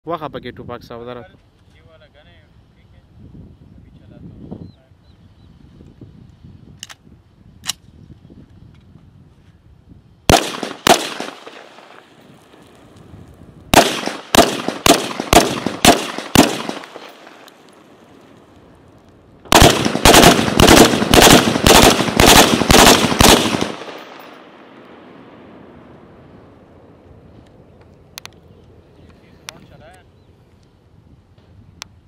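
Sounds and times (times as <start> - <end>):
rifle shots with echo: 10.3 - 12.1, 13.7 - 17.5, 19.5 - 25.7.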